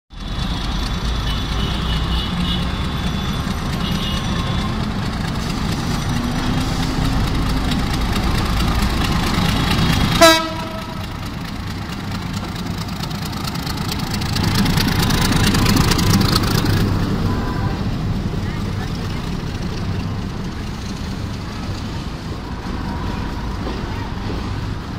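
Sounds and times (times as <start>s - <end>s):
coaches rolling over tracks: 0.1s - 24.9s
diesel locomotive engine running: 0.1s - 24.9s
train horn blast: 10.2s - 11.2s.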